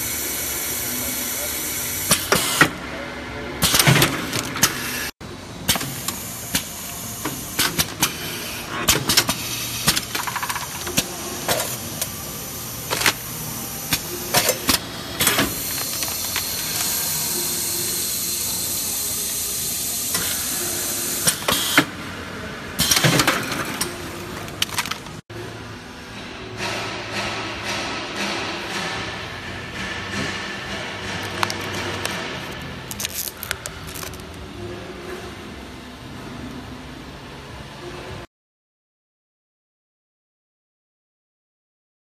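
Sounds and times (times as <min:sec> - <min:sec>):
pneumatic clicks: 0:05.7 - 0:12.2, 0:12.8 - 0:18.3, 0:20.1 - 0:21.9, 0:22.8 - 0:25.1.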